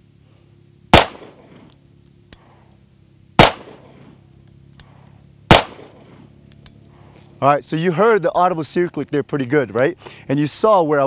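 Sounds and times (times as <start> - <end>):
pistol shots: 0.9 - 1.6, 3.4 - 4.0, 5.5 - 6.0.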